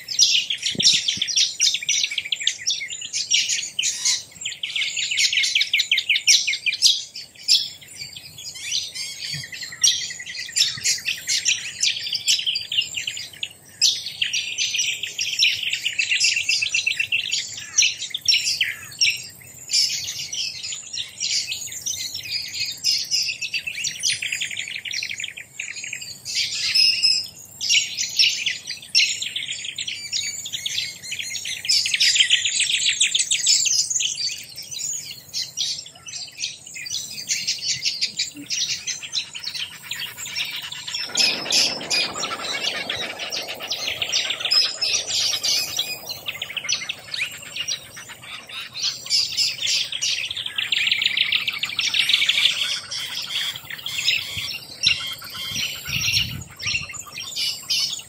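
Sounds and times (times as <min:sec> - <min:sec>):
birds chirping: 0:36.2 - 0:58.0.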